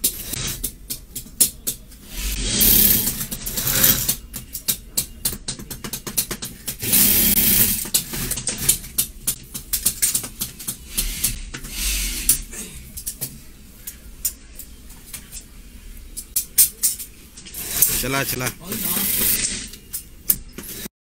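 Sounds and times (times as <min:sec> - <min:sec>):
noisy bursts: 0:02.0 - 0:04.2, 0:06.8 - 0:08.0, 0:17.5 - 0:19.8.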